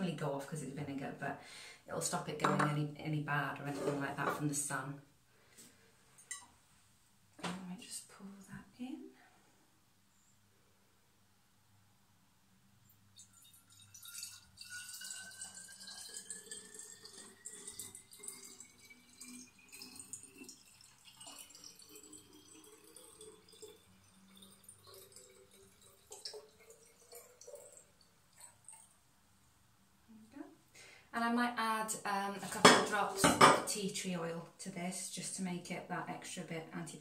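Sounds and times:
liquid trickling into glass bottle: 0:13.1 - 0:29.0.

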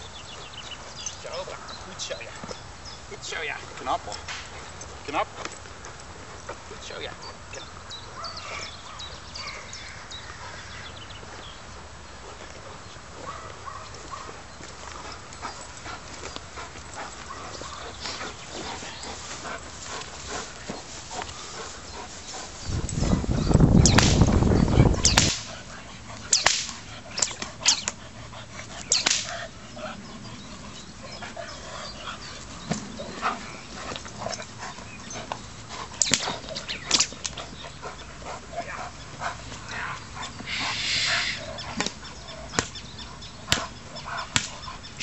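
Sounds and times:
dog barking: 0:13.2 - 0:14.4
whip cracks: 0:23.8 - 0:24.4, 0:25.0 - 0:25.6, 0:26.3 - 0:28.0, 0:28.8 - 0:29.4, 0:36.0 - 0:37.4, 0:42.6 - 0:42.8, 0:44.3 - 0:44.6.

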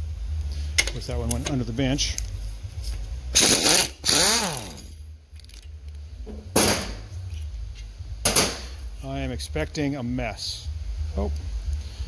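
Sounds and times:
power tool bursts: 0:03.4 - 0:04.9.

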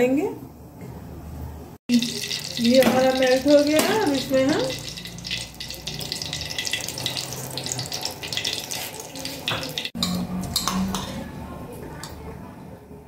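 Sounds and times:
ghee sizzling in a metal pan: 0:01.9 - 0:10.3.

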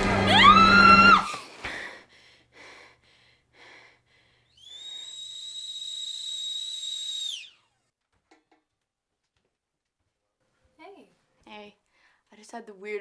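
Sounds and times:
woman screaming: 0:00.3 - 0:01.4
kettle whistling: 0:04.6 - 0:07.9.

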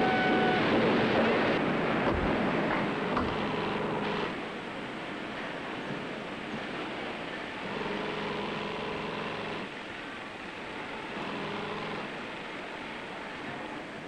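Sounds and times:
sewing machine humming tone: 0:02.9 - 0:04.4, 0:07.6 - 0:09.7, 0:10.8 - 0:12.4.

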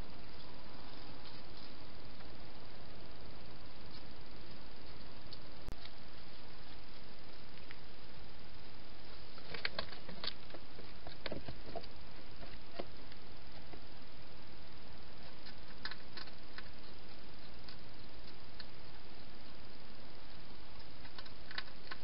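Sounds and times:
steady hiss: 0:00.0 - 0:22.0
hedgehog eating crunches: 0:09.4 - 0:13.9, 0:15.1 - 0:19.6, 0:20.8 - 0:22.0.

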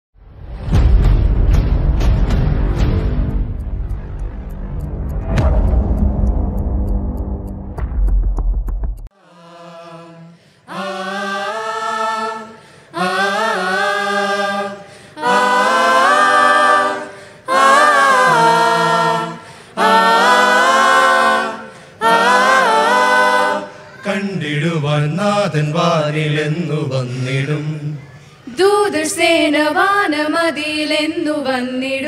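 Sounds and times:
mixed choir singing a cappella: 0:09.1 - 0:31.4.

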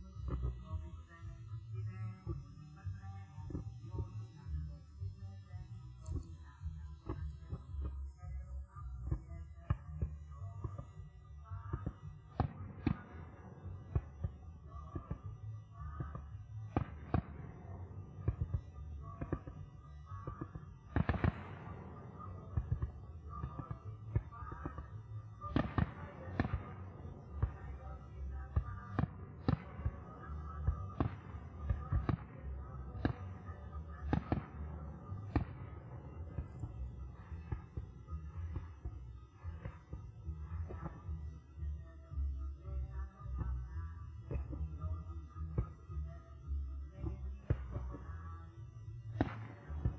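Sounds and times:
low steady rumble: 0:00.0 - 0:49.9
fireworks bangs: 0:20.2 - 0:37.6.

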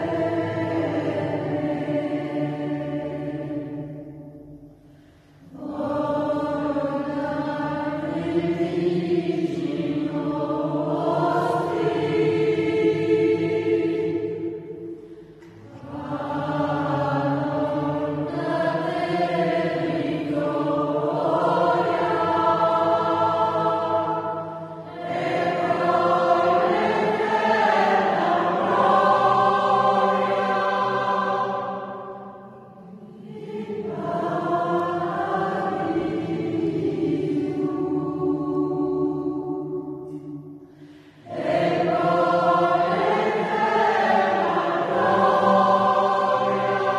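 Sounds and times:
choir singing: 0:00.0 - 0:46.9
singers breathing: 0:04.7 - 0:05.6, 0:14.8 - 0:15.7, 0:40.6 - 0:41.3.

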